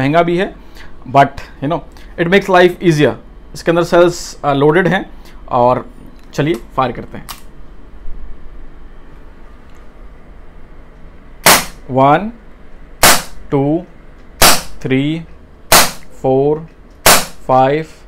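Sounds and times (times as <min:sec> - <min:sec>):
air pistol shots: 0:11.4 - 0:11.8, 0:13.0 - 0:13.4, 0:14.4 - 0:14.8, 0:15.7 - 0:16.1, 0:17.0 - 0:17.4.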